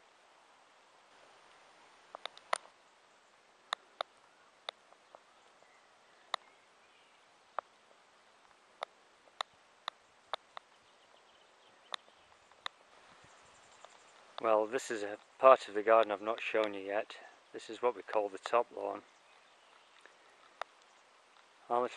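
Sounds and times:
faint outdoor hiss: 0.0 - 21.9
sharp clicks: 2.1 - 2.7, 11.9 - 12.8.

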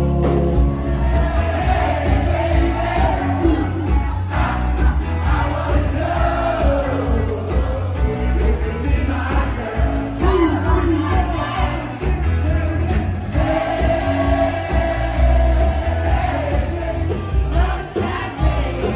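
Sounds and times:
bass line: 0.0 - 18.9
live band playing pop song: 0.0 - 18.9
person singing: 2.6 - 15.3.

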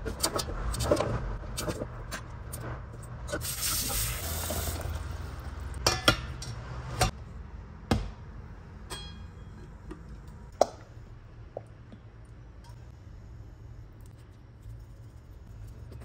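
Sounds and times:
tap water running: 3.4 - 5.2
steel cookware clanking: 5.8 - 7.1, 8.9 - 10.0.

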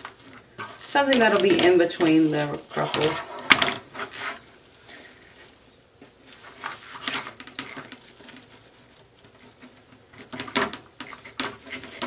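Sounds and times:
mesh rustling by hand: 0.0 - 12.0.

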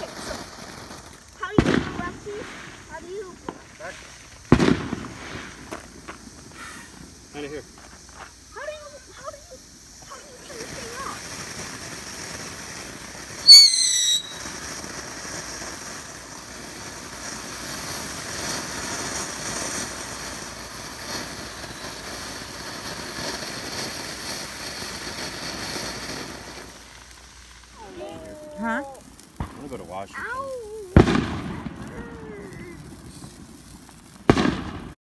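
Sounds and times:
fountain firework hissing and crackling: 0.0 - 35.0
shrill firework whistle: 6.5 - 7.0, 13.3 - 14.7.

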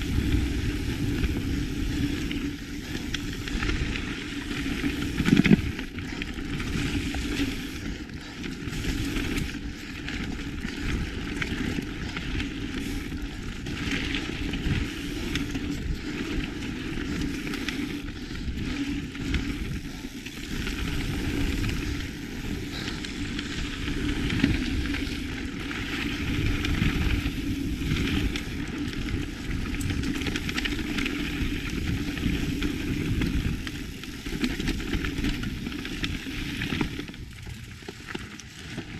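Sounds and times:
bike rattling over bumps: 0.0 - 38.9.

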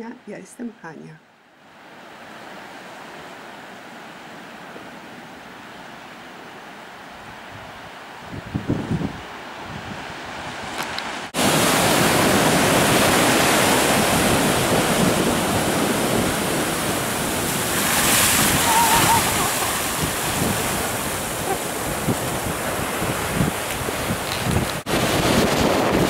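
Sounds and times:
ocean surf washing onto beach: 1.6 - 26.0
wind buffeting microphone: 7.2 - 26.0.

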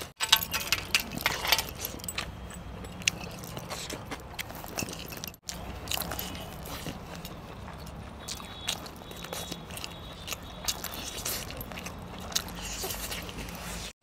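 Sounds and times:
chewing: 0.0 - 14.0
small clicks and clinks: 0.2 - 5.4.

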